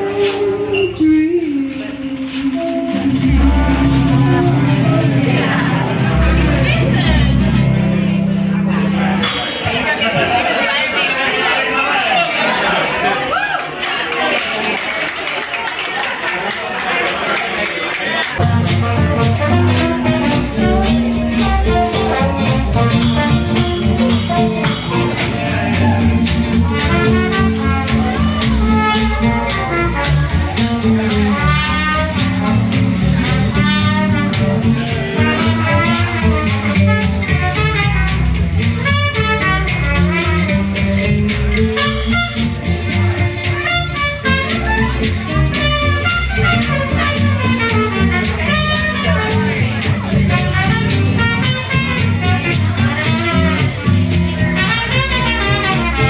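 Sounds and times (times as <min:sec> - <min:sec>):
horn melody: 0:00.0 - 0:09.4, 0:18.4 - 0:56.0
upright bass: 0:00.0 - 0:10.6, 0:18.4 - 0:56.0
jazz band playing swing: 0:00.0 - 0:11.7, 0:14.2 - 0:56.0.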